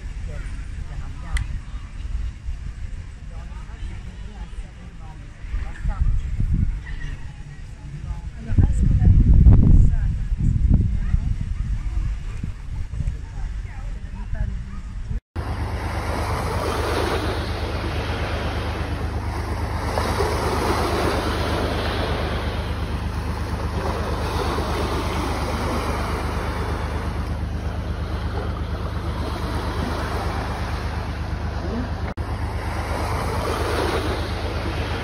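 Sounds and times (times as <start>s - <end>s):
steady low rumble: 0.0s - 35.0s
small waves washing onto shore: 15.4s - 35.0s.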